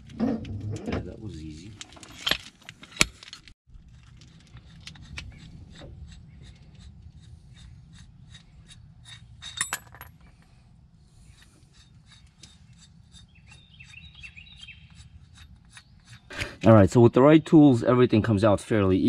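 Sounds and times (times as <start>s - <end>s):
metallic clink: 9.4s - 10.4s
high ticks and chirps: 11.7s - 16.3s.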